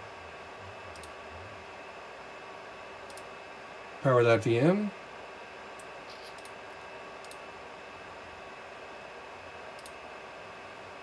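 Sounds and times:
server cooling fans whirring: 0.0 - 11.0
mouse clicks: 9.8 - 10.0.

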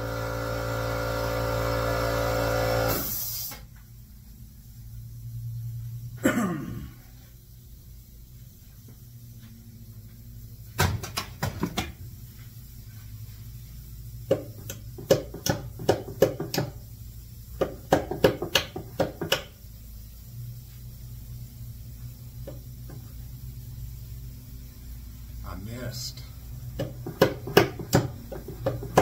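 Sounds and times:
hammer striking wooden box: 14.3 - 16.7, 26.8 - 28.1.

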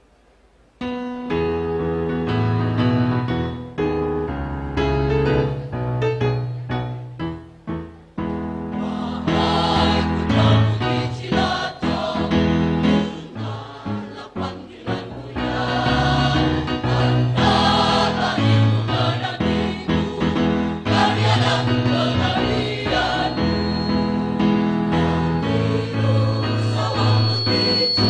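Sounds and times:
choir singing: 8.7 - 28.0.

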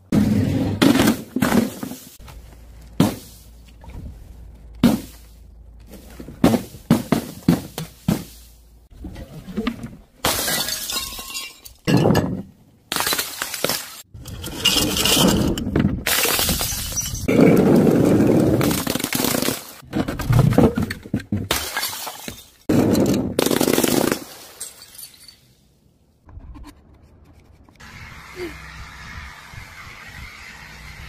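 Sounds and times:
glass bottles smashing: 10.2 - 12.4, 16.1 - 17.3, 21.5 - 23.0, 24.2 - 25.6.

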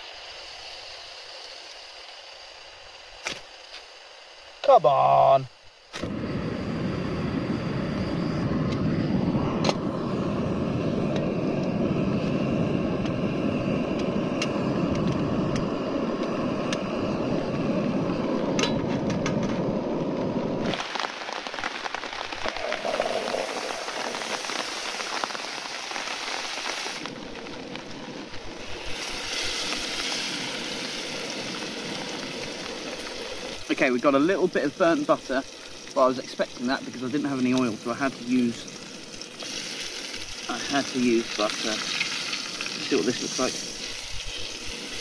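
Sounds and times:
steak sizzling in butter: 0.0 - 6.0, 19.6 - 45.0
gas burner rushing: 0.0 - 45.0.

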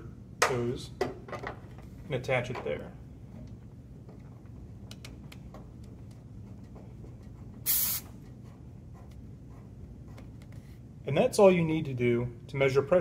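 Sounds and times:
low steady hum: 0.0 - 13.0
refrigerant hissing: 7.7 - 8.1.

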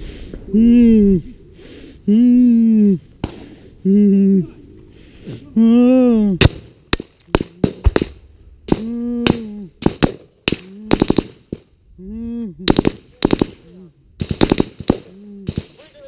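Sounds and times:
gunshots: 6.4 - 11.7, 12.7 - 16.0.

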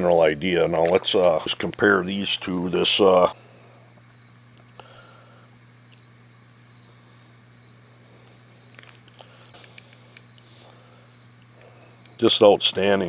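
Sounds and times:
insect chirping: 0.0 - 13.0
low steady hum: 0.0 - 13.0.

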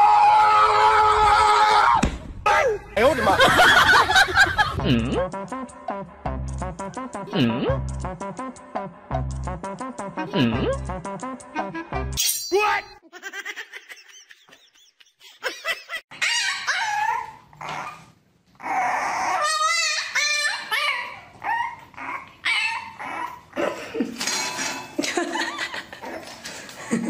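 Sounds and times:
puppy yipping and whining: 16.1 - 23.5.

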